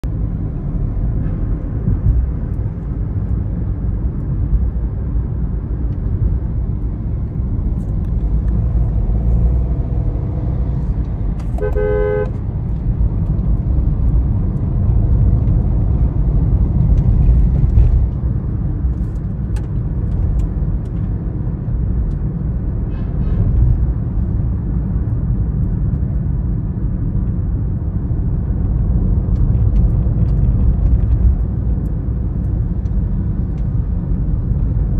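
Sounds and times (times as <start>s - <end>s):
truck diesel engine rumble: 0.0s - 25.9s
vehicle horn honk: 11.5s - 12.4s.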